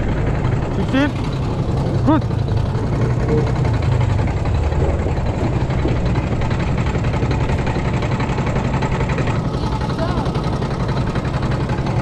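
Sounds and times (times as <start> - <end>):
small petrol engine idling: 0.0 - 12.0.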